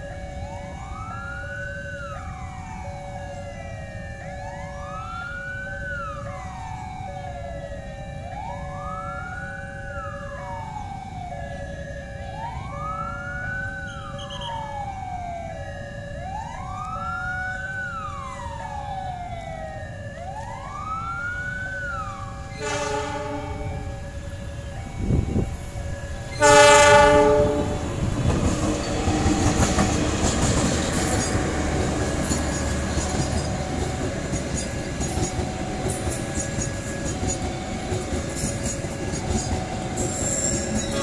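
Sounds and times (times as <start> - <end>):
siren wailing: 0.0 - 41.0
locomotive horn blowing: 22.5 - 24.1, 26.3 - 28.0, 40.8 - 41.0.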